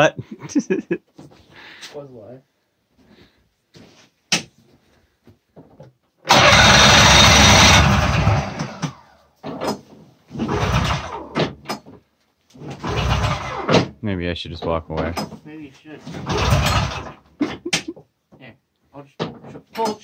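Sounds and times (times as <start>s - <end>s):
two-stroke engine sputtering: 6.3s - 8.8s.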